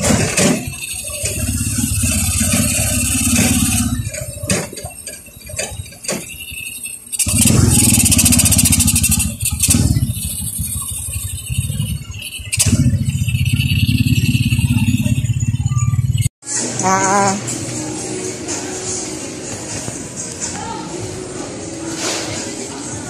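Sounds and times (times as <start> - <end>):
motorcycle engine running: 1.0 - 4.4, 7.2 - 16.3.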